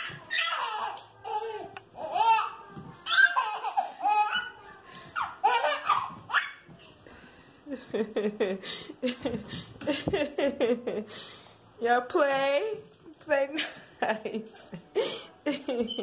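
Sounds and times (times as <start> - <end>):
baby laughing: 0.0 - 6.6.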